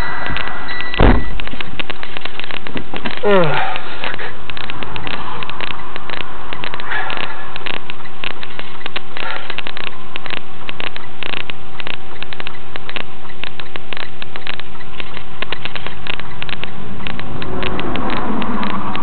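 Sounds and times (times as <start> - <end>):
sharp crackling clicks: 0.0 - 19.0
truck engine and road drone: 0.0 - 19.0
vehicle passing by: 17.1 - 19.0.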